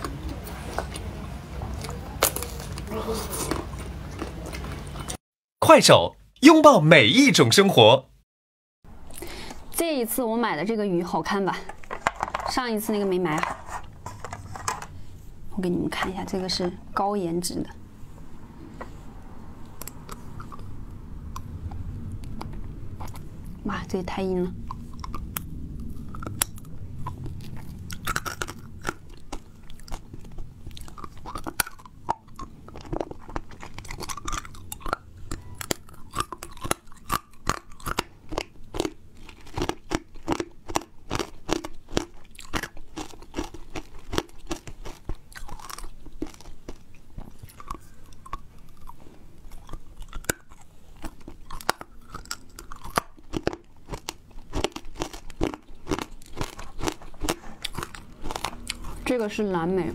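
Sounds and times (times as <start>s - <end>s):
chewing: 0.0s - 5.2s, 19.6s - 23.3s, 24.6s - 59.1s.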